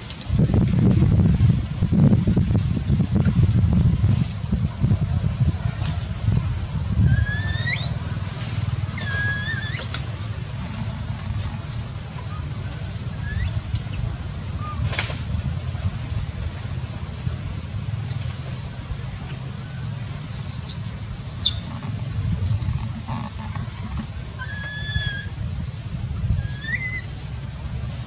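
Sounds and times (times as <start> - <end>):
low rumble: 0.0 - 28.0
baby monkey crying: 7.1 - 8.3, 9.0 - 11.6, 20.2 - 25.3, 26.4 - 27.1
thin high chirps: 20.2 - 21.7.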